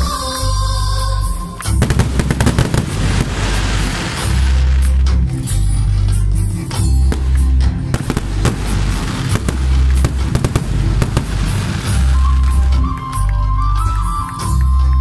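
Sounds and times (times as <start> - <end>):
loud music with heavy bass: 1.4 - 13.1
fireworks bursting and crackling: 1.6 - 5.2, 7.1 - 13.3.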